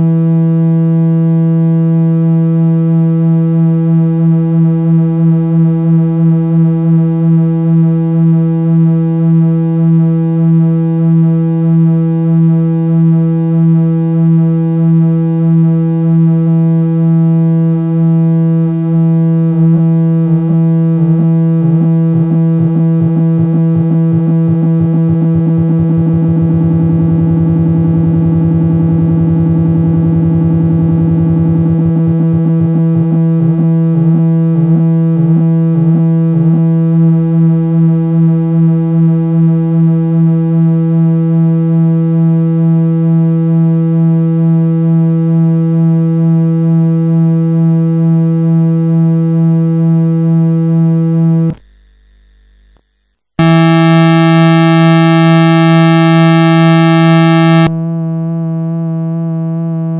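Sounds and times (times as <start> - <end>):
wobbling synthesizer tone: 21.6 - 33.6, 53.4 - 57.7.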